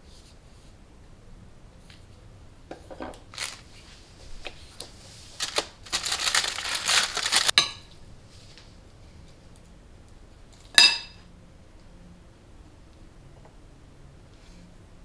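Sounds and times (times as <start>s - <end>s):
plastic bag crinkling: 3.2s - 3.8s, 5.3s - 7.6s.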